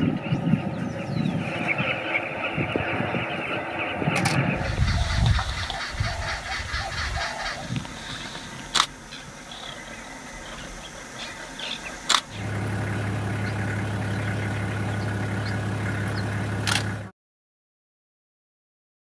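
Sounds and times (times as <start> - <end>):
faint outdoor ambience: 0.0 - 17.1
engine idling: 4.2 - 17.1
sharp clicks: 7.7 - 9.0, 12.0 - 12.4, 16.1 - 17.0.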